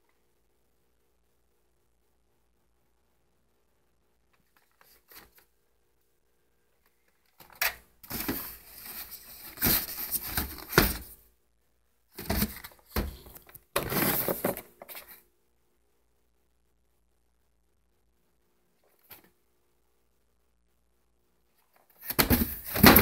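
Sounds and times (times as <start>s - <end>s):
packaging scraping and rustling: 8.1s - 11.1s, 12.2s - 15.2s.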